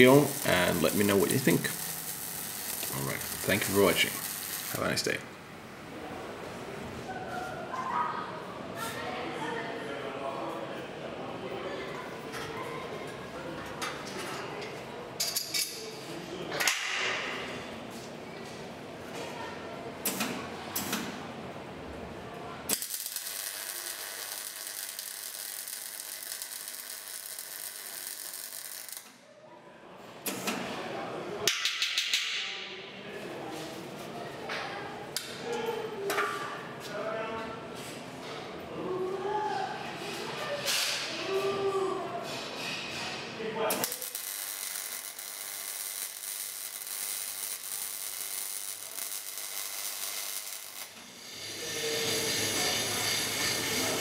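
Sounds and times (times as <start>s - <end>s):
welding arc crackling: 0.0s - 5.2s, 22.7s - 29.1s, 43.7s - 54.0s.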